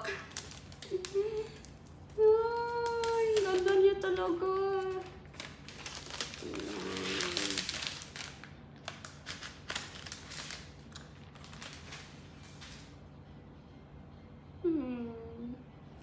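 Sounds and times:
plastic wrapping rustling: 0:00.0 - 0:13.0.

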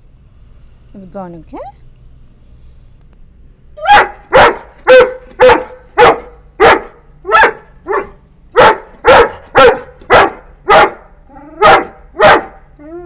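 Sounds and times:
puppy barking loudly: 0:03.8 - 0:12.7.

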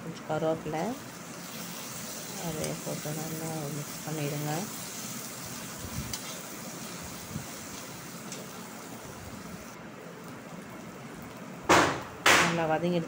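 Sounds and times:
food sizzling in oil: 0:00.6 - 0:11.6
steel spatula scraping: 0:04.7 - 0:08.5.

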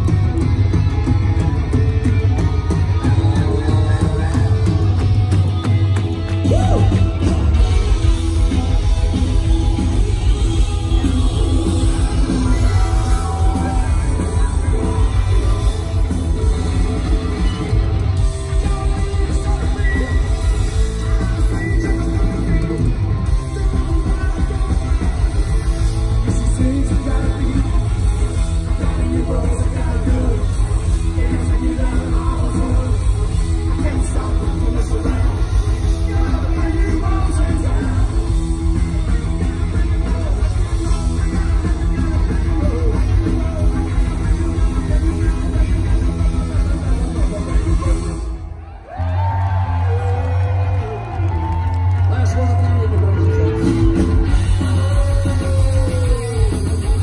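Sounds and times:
bass guitar: 0:00.0 - 0:57.0
drums: 0:00.0 - 0:57.0
electric guitar: 0:00.0 - 0:57.0
keyboards: 0:00.0 - 0:57.0
man singing: 0:06.4 - 0:48.2, 0:53.3 - 0:57.0.

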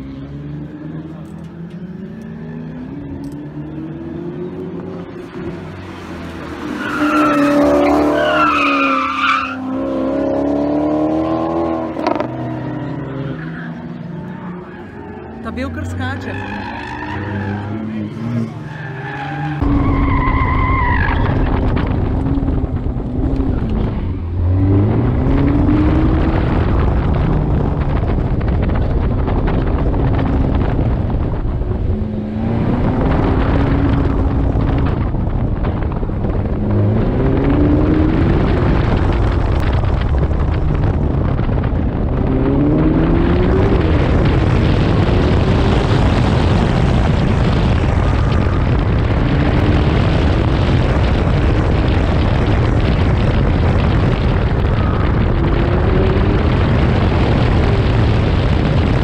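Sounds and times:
sports car engine accelerating: 0:00.0 - 0:59.0
wind rush: 0:19.5 - 0:59.0.

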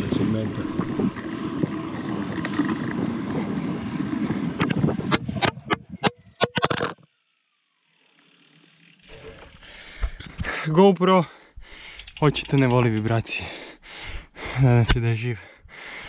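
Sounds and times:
road rumble: 0:00.0 - 0:06.4
wind noise: 0:00.0 - 0:06.4.

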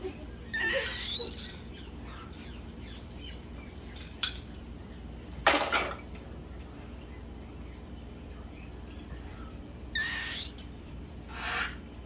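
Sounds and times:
cockatiel squawks: 0:00.6 - 0:01.7, 0:10.0 - 0:11.8
cockatiel whistle: 0:01.0 - 0:01.7, 0:10.0 - 0:10.9.

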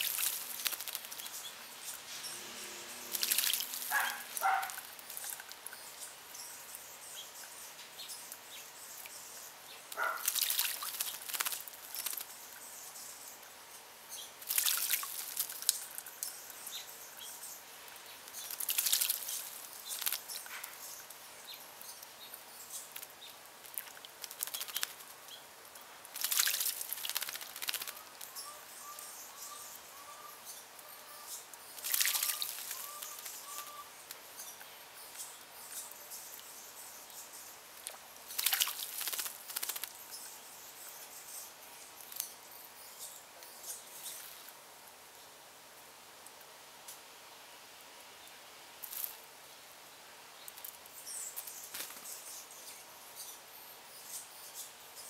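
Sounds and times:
bird splashing in water: 0:00.0 - 0:01.3, 0:03.0 - 0:05.5, 0:10.0 - 0:12.3, 0:14.4 - 0:15.7, 0:18.4 - 0:20.4, 0:23.7 - 0:25.0, 0:26.1 - 0:28.0, 0:31.8 - 0:33.7, 0:38.3 - 0:39.9.

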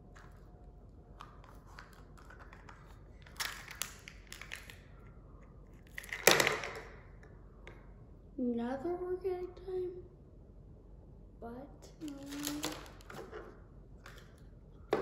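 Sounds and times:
hard plastic crinkling and clicking: 0:01.2 - 0:04.9, 0:12.0 - 0:15.0.

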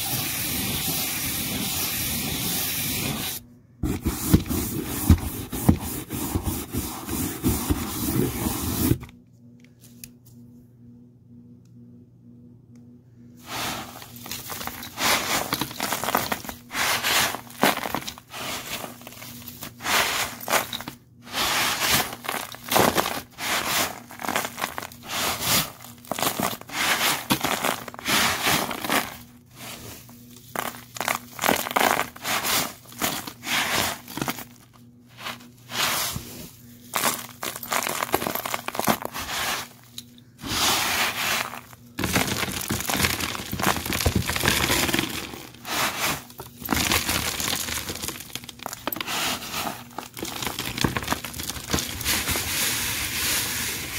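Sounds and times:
dirt and confetti crunching: 0:36.9 - 0:39.7, 0:40.5 - 0:52.8.

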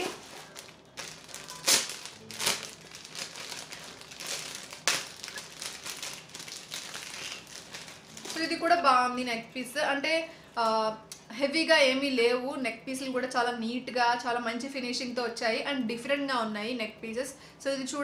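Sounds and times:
plastic pouch crinkling: 0:00.0 - 0:08.8.

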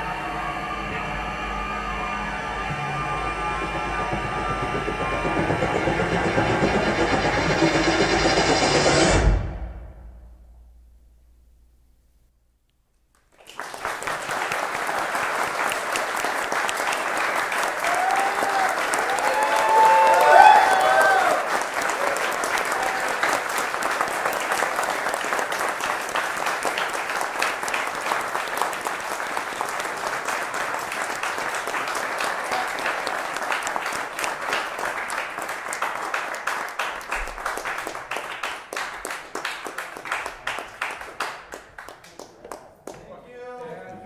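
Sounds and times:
audience applauding: 0:13.1 - 0:43.2.

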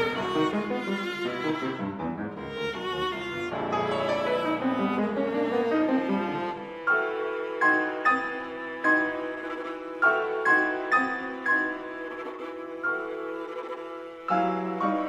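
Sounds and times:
bowed viola melody: 0:00.0 - 0:15.0
piano notes: 0:00.0 - 0:15.0.

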